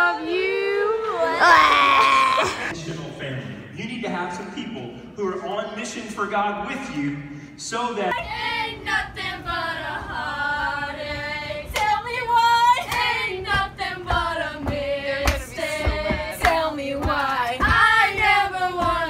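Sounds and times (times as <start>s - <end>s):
women singing unaccompanied: 0.0s - 2.6s, 8.2s - 19.0s
low thumps: 12.9s - 19.0s.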